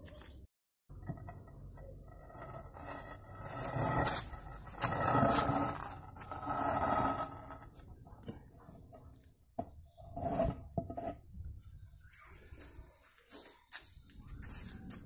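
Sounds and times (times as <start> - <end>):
concrete scraping on paving: 1.1 - 8.3, 9.0 - 11.4, 12.6 - 15.0.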